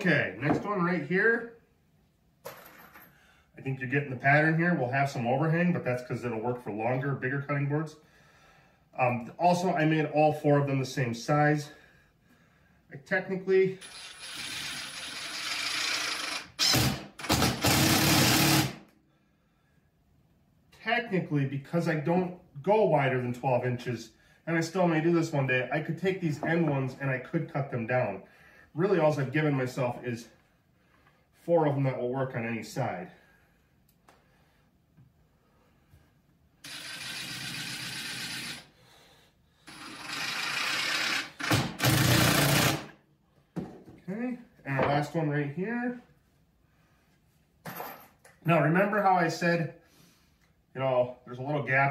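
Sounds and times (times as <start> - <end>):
impact driver hammering: 41.4 - 42.9.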